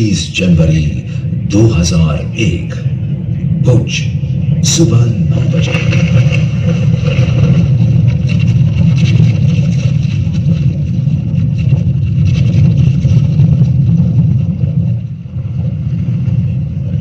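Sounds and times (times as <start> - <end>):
deep earthquake rumble: 0.0 - 17.0
faint crackles: 5.2 - 17.0.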